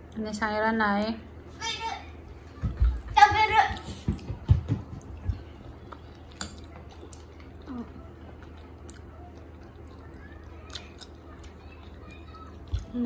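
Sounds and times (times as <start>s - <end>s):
steady low hum: 0.0s - 13.0s
faint chewing: 5.0s - 13.0s.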